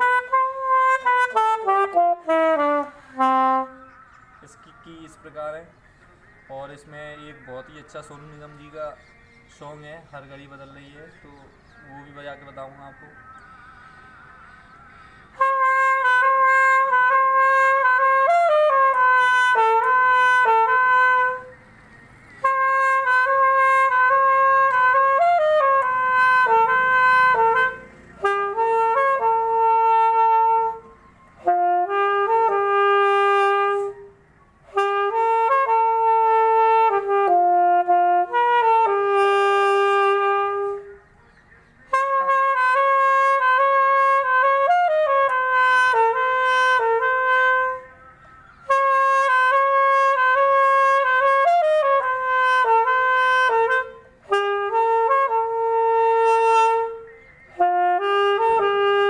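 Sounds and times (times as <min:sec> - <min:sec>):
solo saxophone melody: 0:00.0 - 0:04.1, 0:15.3 - 0:21.6, 0:22.4 - 0:41.0, 0:41.9 - 0:48.0, 0:48.6 - 0:59.0.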